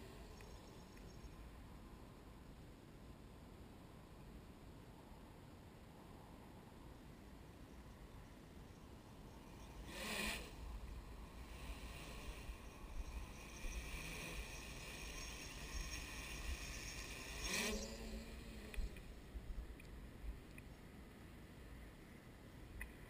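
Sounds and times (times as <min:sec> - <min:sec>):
drone motors whining: 0:09.2 - 0:19.3.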